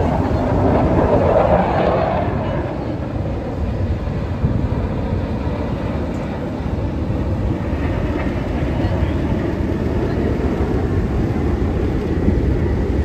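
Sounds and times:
distant jet aircraft rumble: 0.0s - 13.0s.

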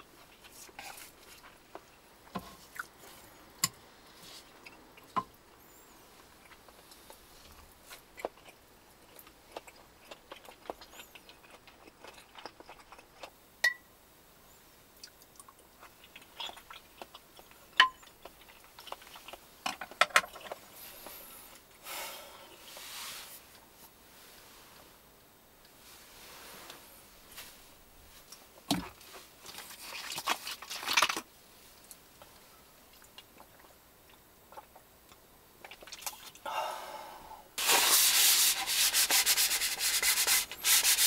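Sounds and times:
quiet chewing: 0.0s - 13.4s, 14.9s - 21.8s, 27.4s - 36.4s
short rustle: 25.8s - 30.4s.

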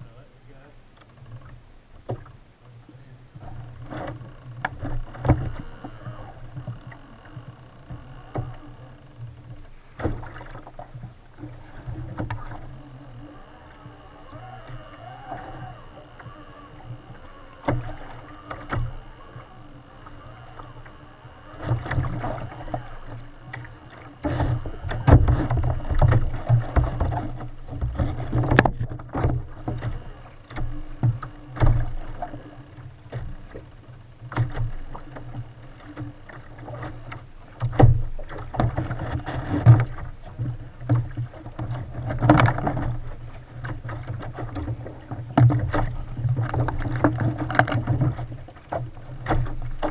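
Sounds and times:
waves slapping against kayak hull: 0.0s - 49.9s.

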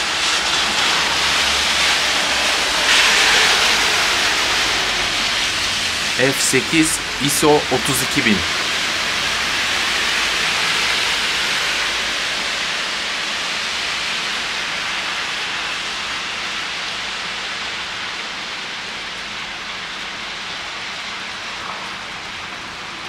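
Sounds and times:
rain falling on a street: 0.0s - 23.0s.

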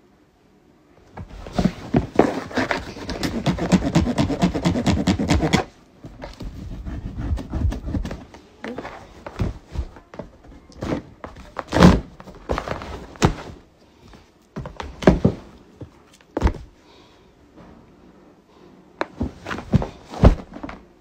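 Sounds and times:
cardboard box thunks: 19.1s - 20.8s.

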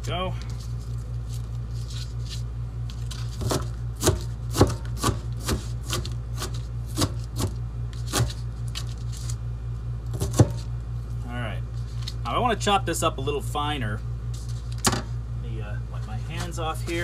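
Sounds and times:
steady low hum: 0.0s - 17.0s
knife chopping onion: 3.4s - 8.5s, 10.1s - 10.7s.

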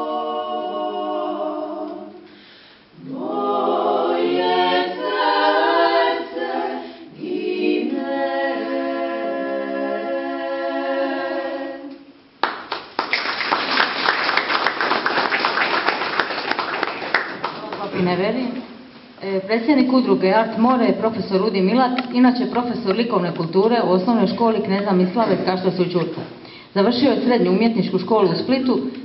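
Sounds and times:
women singing a cappella: 0.0s - 12.2s
audience applause: 12.4s - 17.9s.

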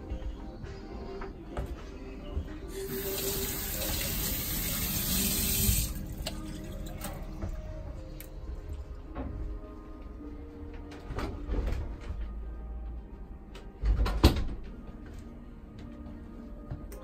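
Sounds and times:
tap water running into sink: 2.8s - 7.2s.

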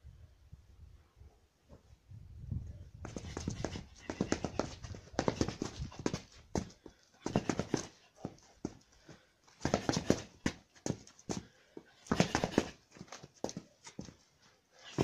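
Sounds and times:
scuffs and knocks of footwork: 3.0s - 15.0s.

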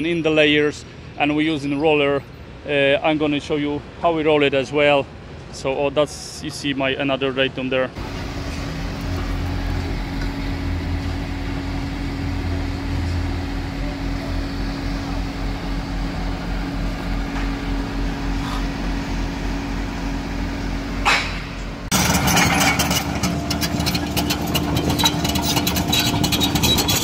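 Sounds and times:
diesel engine humming: 7.9s - 27.0s
engine clattering: 8.0s - 27.0s.

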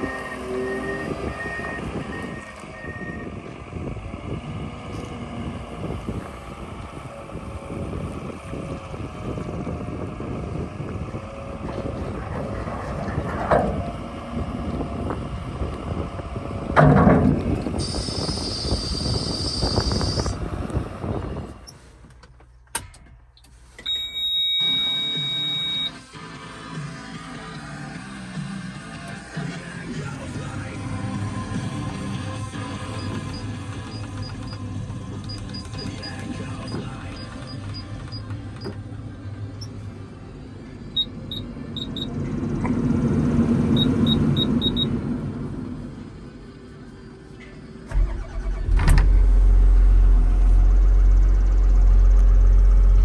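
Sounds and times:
wheel loader engine running: 0.0s - 22.8s, 23.5s - 53.0s
wind on microphone: 1.0s - 21.7s
blower fan rushing: 3.1s - 22.1s
short control panel beeps: 23.8s - 26.0s, 41.0s - 42.1s, 43.8s - 44.9s
high-pitched electronic buzzer: 23.9s - 26.0s.

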